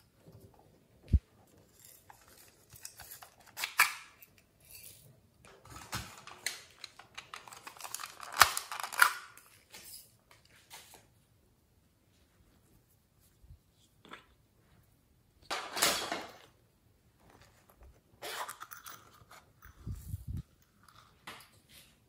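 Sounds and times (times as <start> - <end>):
plastic clattering: 5.4 - 9.4.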